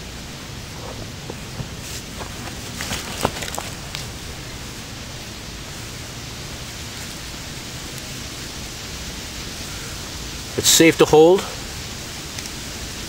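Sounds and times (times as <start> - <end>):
steady background hiss: 0.0 - 13.0
faint clicks and rustles: 0.5 - 4.3.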